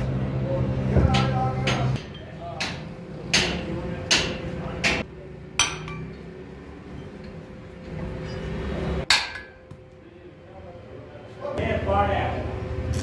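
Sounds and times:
hammer striking steel: 0:01.1 - 0:06.2, 0:09.0 - 0:09.6.

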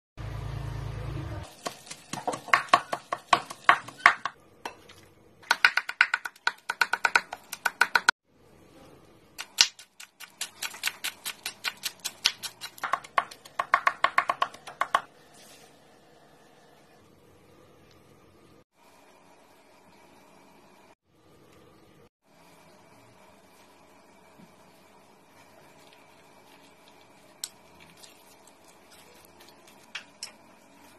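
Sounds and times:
knife chopping on wooden board: 0:01.6 - 0:04.4.

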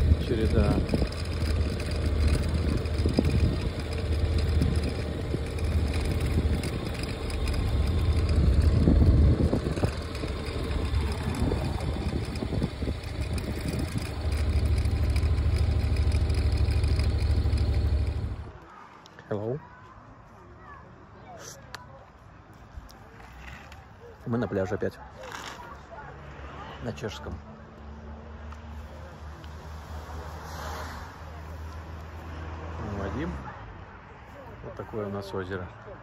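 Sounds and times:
wind rumbling on microphone: 0:00.0 - 0:14.8
motorcycle engine: 0:00.0 - 0:18.6.

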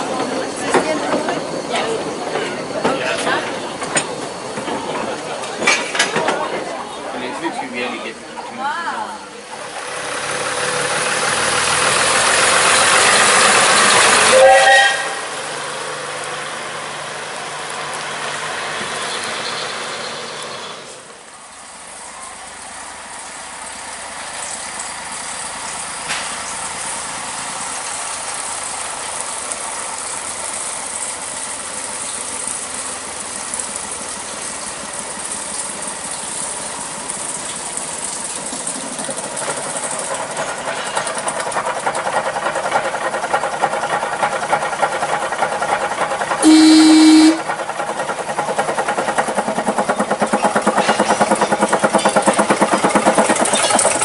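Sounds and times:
diesel locomotive engine: 0:00.0 - 0:54.0
train horn blast: 0:14.2 - 0:15.3, 0:46.4 - 0:47.5.

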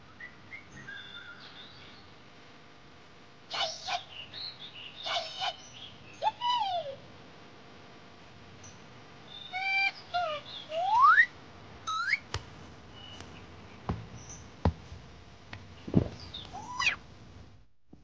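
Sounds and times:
baby monkey squeaky calls: 0:09.4 - 0:11.3, 0:16.5 - 0:17.0
sharp knocks: 0:13.9 - 0:15.0.

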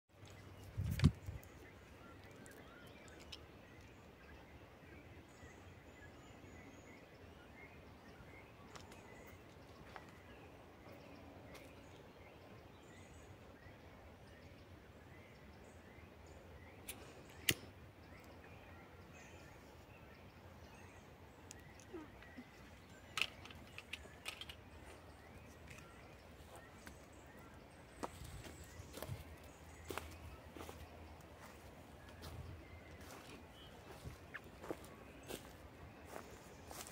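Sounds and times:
faint bird chirps: 0:00.1 - 0:36.9
sharp snaps: 0:16.8 - 0:18.3.

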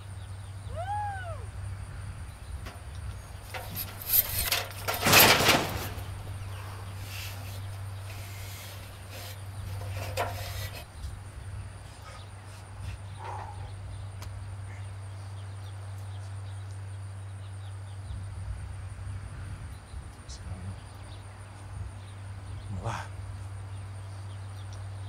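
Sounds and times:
knocks and rattles: 0:02.6 - 0:06.6, 0:07.2 - 0:10.9.

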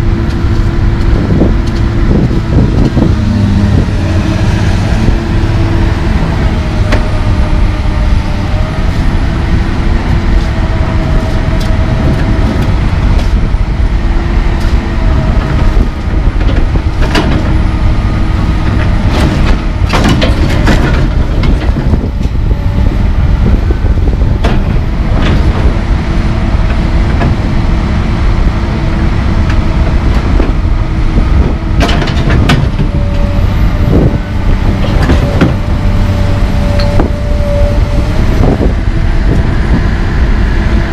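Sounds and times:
diesel engine under load: 0:00.0 - 0:40.9
hydraulic whine: 0:00.0 - 0:40.9
metal knocks and clanks: 0:16.4 - 0:17.6, 0:18.7 - 0:22.4, 0:31.8 - 0:33.2, 0:34.7 - 0:35.7.

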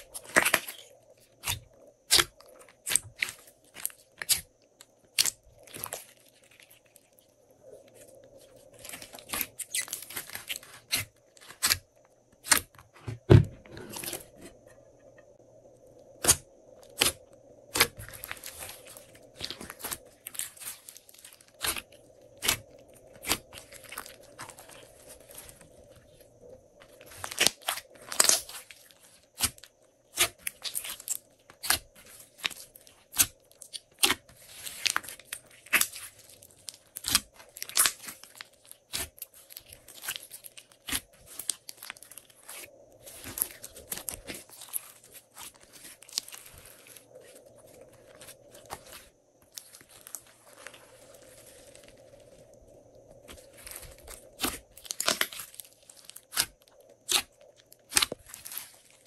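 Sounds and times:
slime squishing and popping: 0:29.4 - 0:46.8, 0:53.6 - 0:57.3, 0:57.9 - 0:58.7.

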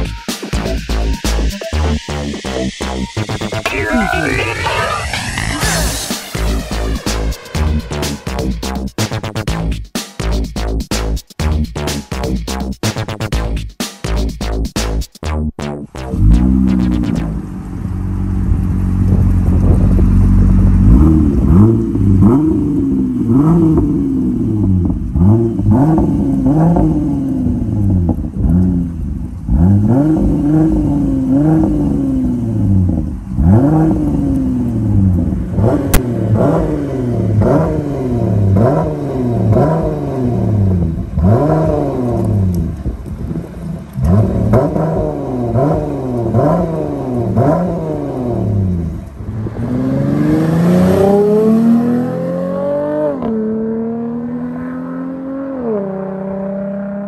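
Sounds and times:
car engine idling and revving: 0:00.0 - 0:14.8, 0:15.9 - 0:57.0.

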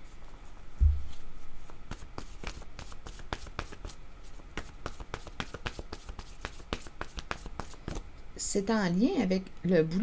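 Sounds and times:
dull low thump: 0:00.8 - 0:01.2
cards shuffling: 0:01.9 - 0:08.0.

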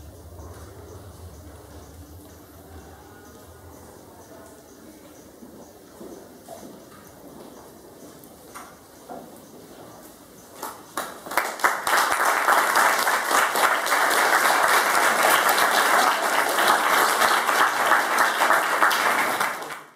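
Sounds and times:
audience applauding: 0:11.0 - 0:19.9.

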